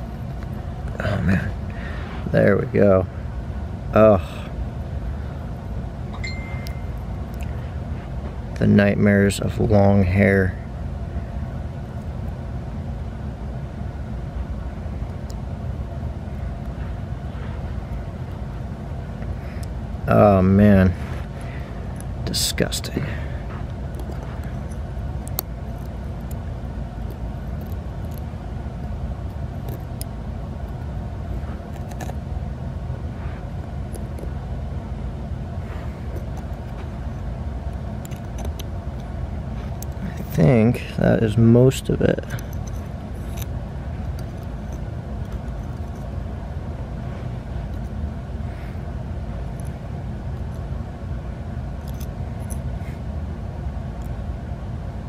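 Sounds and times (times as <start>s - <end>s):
low background rumble: 0.0s - 55.0s
metal tweezers clicking: 23.9s - 26.4s.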